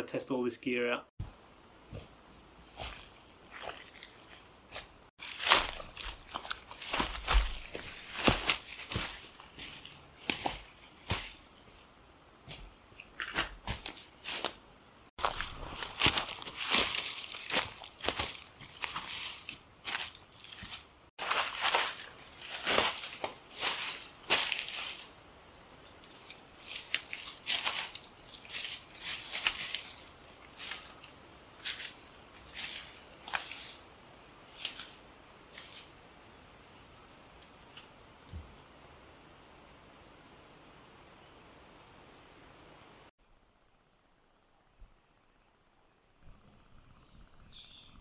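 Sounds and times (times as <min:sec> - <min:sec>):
footsteps crunching on dry leaves: 0:02.7 - 0:11.8, 0:13.6 - 0:14.6, 0:15.2 - 0:25.2, 0:25.8 - 0:36.0
brushing through ferns: 0:02.7 - 0:11.9, 0:15.2 - 0:25.2, 0:25.8 - 0:36.0.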